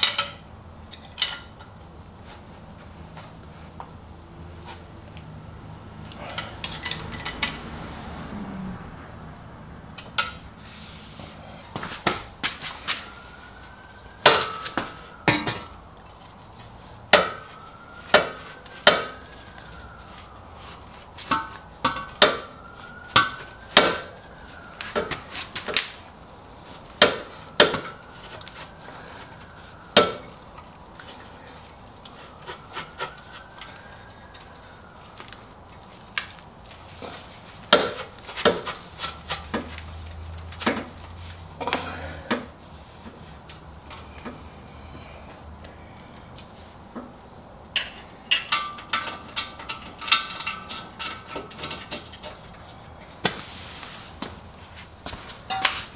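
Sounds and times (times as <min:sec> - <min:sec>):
metal exhaust pipes clanking: 0:00.0 - 0:01.8, 0:06.0 - 0:07.9, 0:09.9 - 0:10.7, 0:47.7 - 0:52.8, 0:55.1 - 0:55.9.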